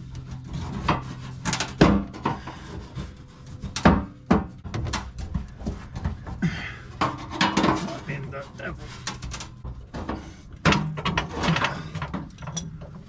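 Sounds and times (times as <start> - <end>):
hand tools clanking on metal: 9.0 - 13.0.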